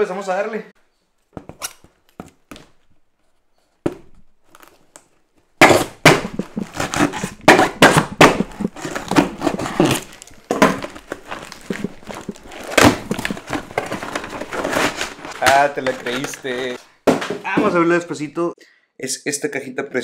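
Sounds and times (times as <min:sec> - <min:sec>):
packing tape ripping off cardboard: 0:04.4 - 0:16.8
cardboard crackling and tearing: 0:05.6 - 0:16.8.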